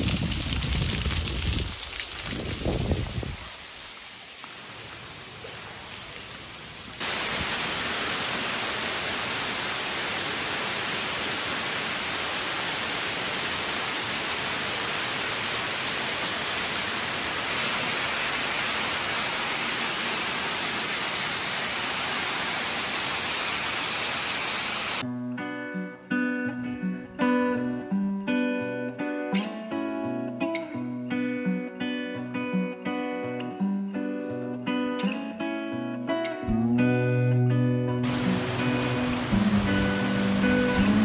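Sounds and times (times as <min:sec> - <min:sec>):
water splashing down rocks: 0:00.0 - 0:25.0, 0:38.0 - 0:41.0.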